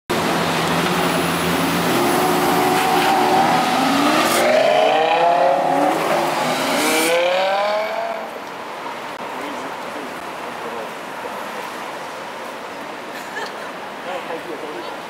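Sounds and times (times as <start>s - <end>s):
car engine revving hard: 1.4s - 8.3s.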